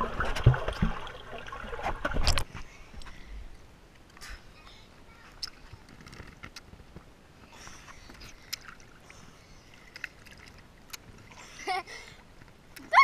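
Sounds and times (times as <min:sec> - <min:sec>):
pool water lapping: 0:00.0 - 0:02.5, 0:07.3 - 0:13.0
small clicks and drips: 0:07.8 - 0:13.0.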